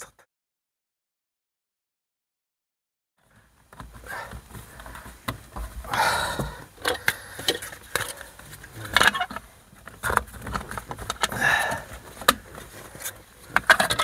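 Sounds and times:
plastic rubbing and scraping: 0:06.8 - 0:14.0.

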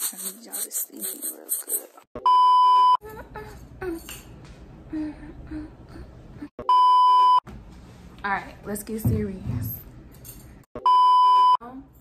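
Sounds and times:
high-pitched censor beep: 0:10.8 - 0:11.6.

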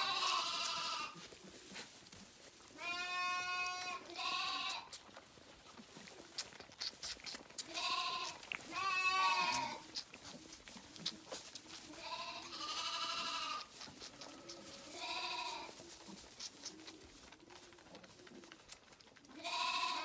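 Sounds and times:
lambs bleating: 0:00.0 - 0:01.2, 0:02.7 - 0:05.0, 0:06.8 - 0:10.4, 0:11.0 - 0:16.7, 0:19.3 - 0:20.0.

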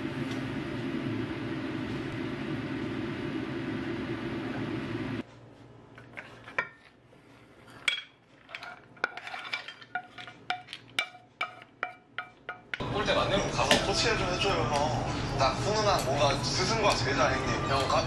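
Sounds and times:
stove rushing noise: 0:00.0 - 0:18.0
spatula scraping and tapping: 0:06.0 - 0:12.8.

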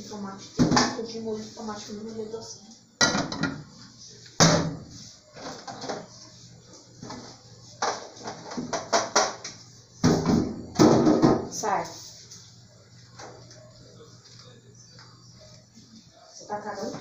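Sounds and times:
saucepan clanking on metal grate: 0:03.0 - 0:03.7.

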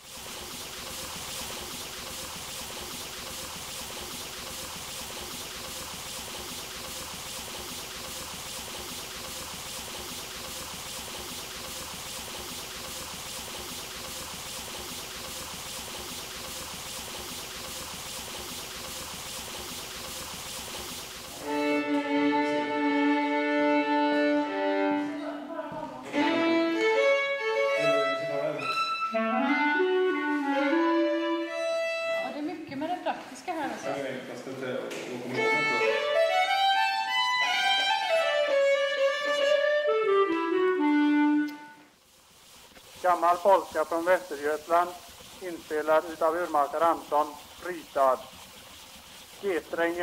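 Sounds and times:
fiddle playing held notes: 0:21.4 - 0:25.2, 0:26.1 - 0:29.9, 0:35.3 - 0:37.6
wax cylinder surface hiss: 0:41.8 - 0:50.0.

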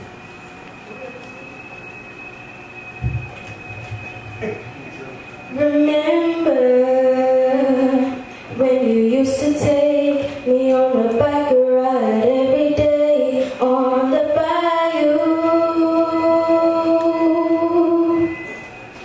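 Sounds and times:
girl singing into a microphone: 0:05.5 - 0:18.5.

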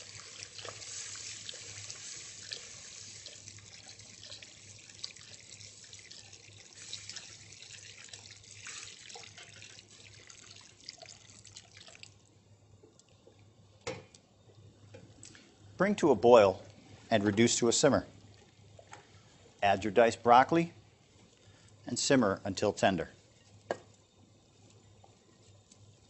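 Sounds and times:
wooden spoon stirring in pot: 0:00.0 - 0:11.9, 0:23.2 - 0:26.0
liquid pouring into pot: 0:00.0 - 0:12.3.

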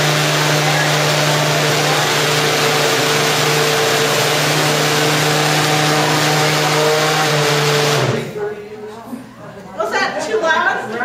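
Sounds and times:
blender running: 0:00.0 - 0:08.4.

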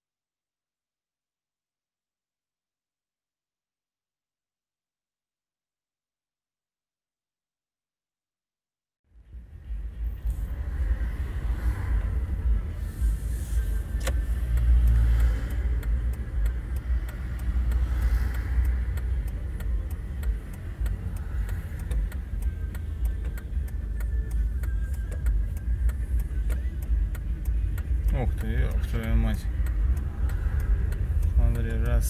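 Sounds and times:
car engine and road rumble: 0:09.1 - 0:32.0
light ticking: 0:12.1 - 0:32.0
sharp click: 0:13.9 - 0:14.7.

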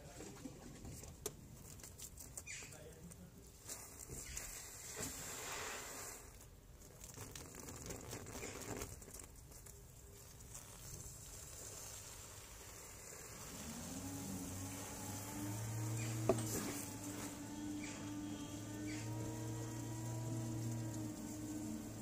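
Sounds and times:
water spraying onto trampoline mat: 0:01.3 - 0:22.0
low tonal hum: 0:13.5 - 0:22.0.

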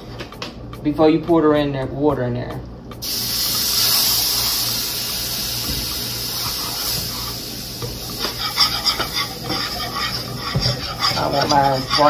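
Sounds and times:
water hissing in hot pan: 0:03.0 - 0:11.1
whisk clicking against pan: 0:07.8 - 0:12.0.

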